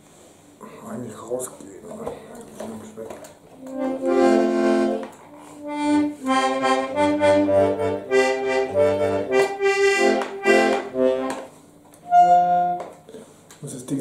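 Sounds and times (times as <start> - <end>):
button accordion chords: 3.6 - 13.0.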